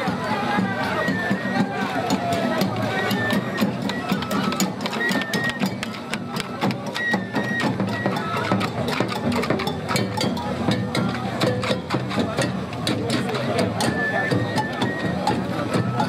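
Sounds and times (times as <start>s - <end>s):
crowd hum: 0.0s - 16.0s.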